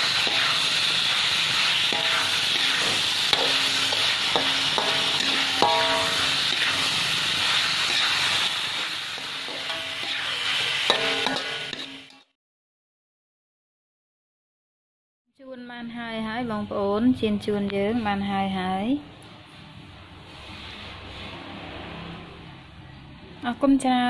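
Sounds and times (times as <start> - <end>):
fish sizzling in hot oil: 0.0 - 12.3
metal spatula scraping pan: 0.0 - 12.3
spatula knocking against pan: 4.3 - 6.1.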